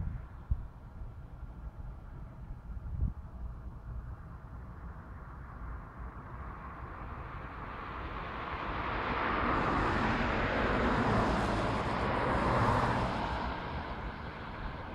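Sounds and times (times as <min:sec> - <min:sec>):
cars passing by: 0:04.2 - 0:14.9.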